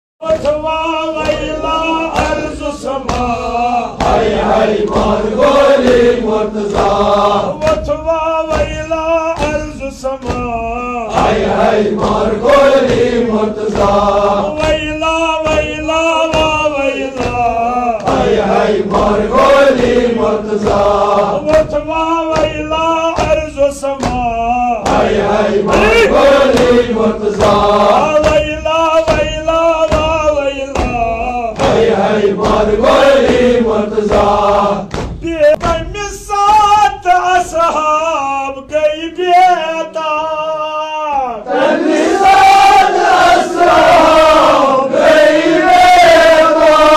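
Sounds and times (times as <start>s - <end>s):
beat of sharp strikes: 0.2s - 36.8s
men chanting a lament: 0.2s - 46.9s.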